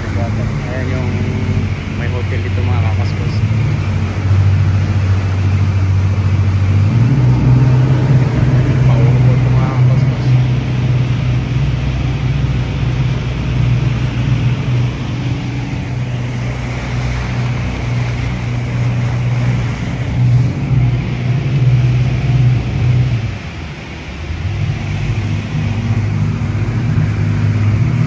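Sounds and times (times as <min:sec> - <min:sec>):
outboard motors droning: 0:00.0 - 0:28.0
water and wind rushing: 0:00.0 - 0:28.0.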